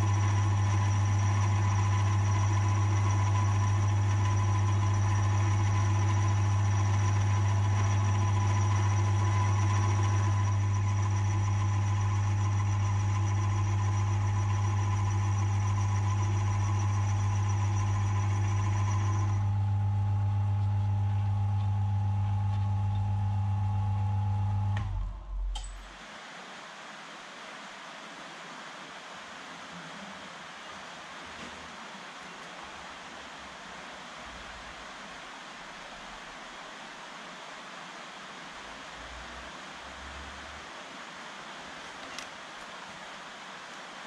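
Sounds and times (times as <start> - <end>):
deep motor hum: 0.0 - 25.5
high steady cutter whine: 0.0 - 25.5.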